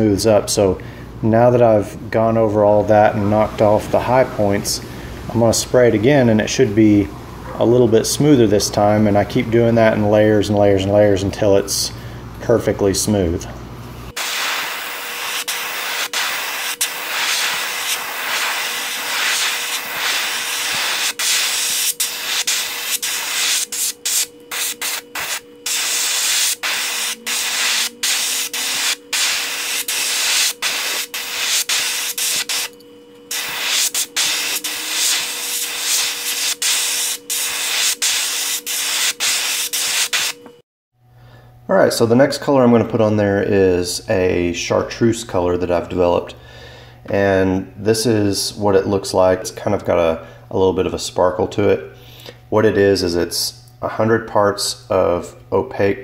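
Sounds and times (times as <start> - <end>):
steady hum: 0.0 - 56.0
paint spray hissing: 14.2 - 32.7, 33.3 - 40.4.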